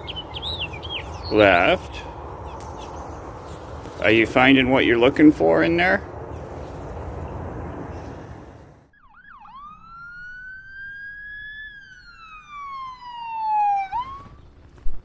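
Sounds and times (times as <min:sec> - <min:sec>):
steady outdoor noise: 0:00.0 - 0:15.0
siren whooping and wailing: 0:08.9 - 0:14.6.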